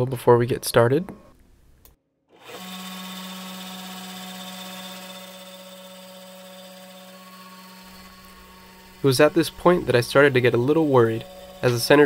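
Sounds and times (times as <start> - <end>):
lathe motor humming: 2.4 - 12.0.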